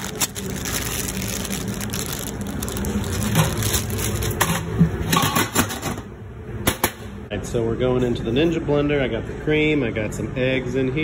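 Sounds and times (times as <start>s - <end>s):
plastic bag rustling: 0.0s - 4.5s.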